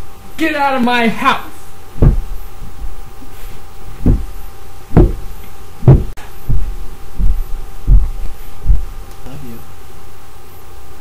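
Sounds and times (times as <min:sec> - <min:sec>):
heavy dull thumps: 0:01.9 - 0:09.0.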